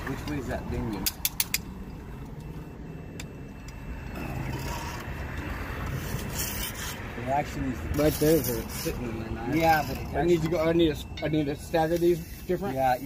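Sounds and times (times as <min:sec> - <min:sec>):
metal tools clinking: 0:07.9 - 0:13.0.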